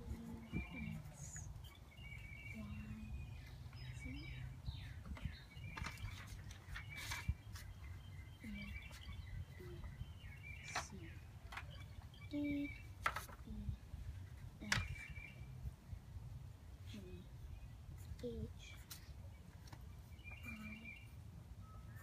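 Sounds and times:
birds chirping: 0.0 - 22.0
paper and pencil rustles: 4.8 - 8.0, 8.6 - 9.9, 12.8 - 15.1, 18.0 - 21.2.

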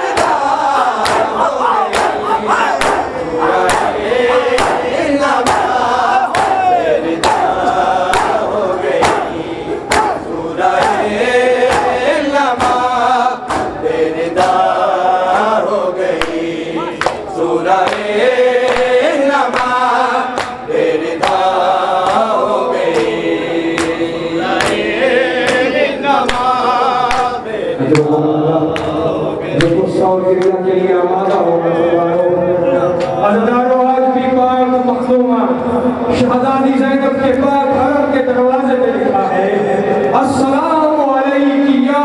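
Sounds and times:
men singing in chorus: 0.0 - 33.5
hands striking bare chests: 0.1 - 7.5, 8.1 - 12.0.

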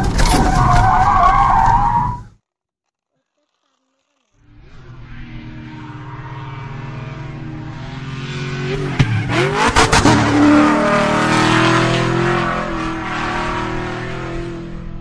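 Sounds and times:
race car engine revving: 4.4 - 15.0.

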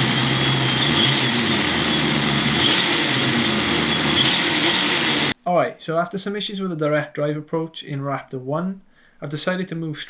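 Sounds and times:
electric motors driving gears: 0.0 - 5.4.

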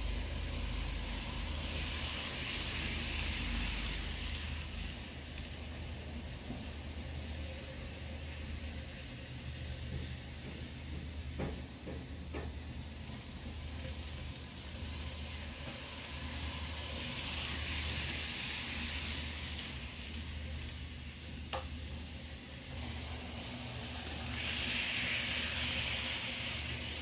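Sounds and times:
model train motor whirring: 0.0 - 27.0.

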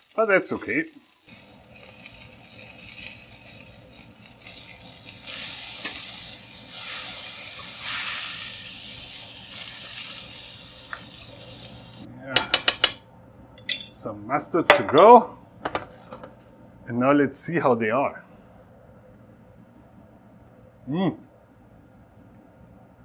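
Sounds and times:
sausage sizzling in hot oil: 0.0 - 12.1.

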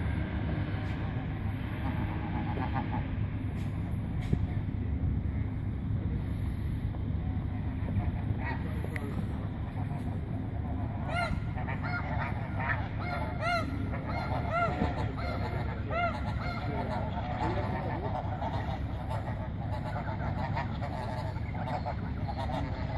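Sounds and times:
steady low rumble: 0.0 - 22.9
geese honking: 7.2 - 22.9.

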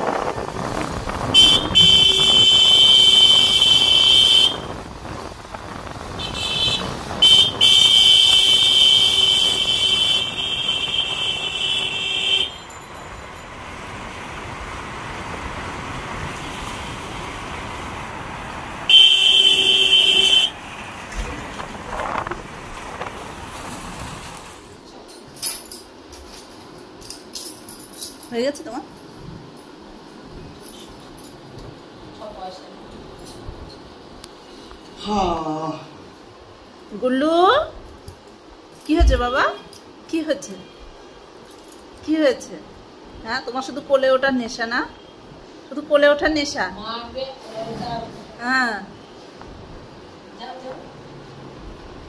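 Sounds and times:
street traffic noise: 0.0 - 52.0
vehicle horn blasts: 1.4 - 4.7, 6.2 - 12.7, 18.9 - 20.6.

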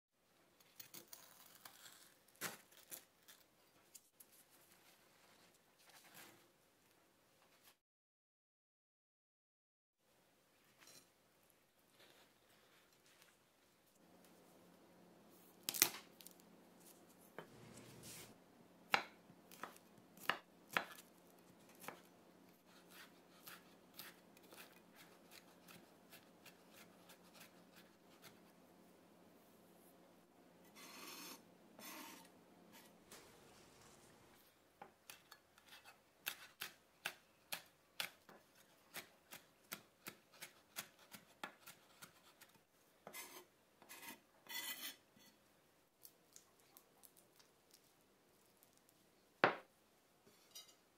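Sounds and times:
knife rasp: 30.8 - 33.0, 43.1 - 45.0.

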